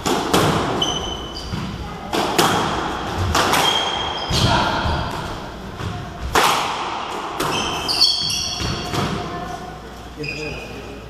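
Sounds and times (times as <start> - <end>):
squash ball cracking off rackets: 0.0 - 7.8
shoes squeaking on wooden floor: 0.8 - 1.8.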